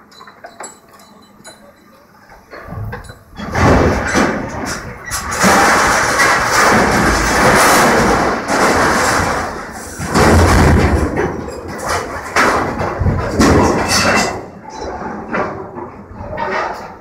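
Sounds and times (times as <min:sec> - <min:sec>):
metal crunching and tearing: 0:03.4 - 0:15.6.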